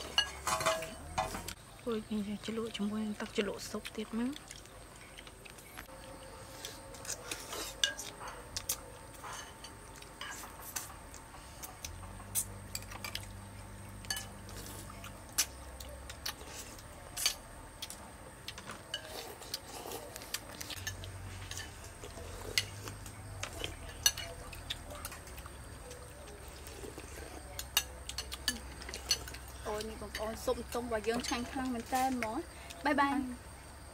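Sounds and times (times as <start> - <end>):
spoons clinking on ceramic bowls: 0.0 - 1.4, 14.1 - 14.4, 23.5 - 24.5.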